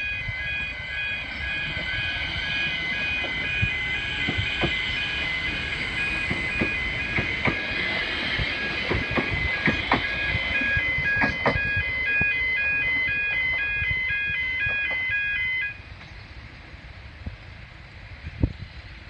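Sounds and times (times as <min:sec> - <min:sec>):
level crossing bells ringing: 0:00.0 - 0:15.8
train wheels clacking over rail joints: 0:02.6 - 0:11.7.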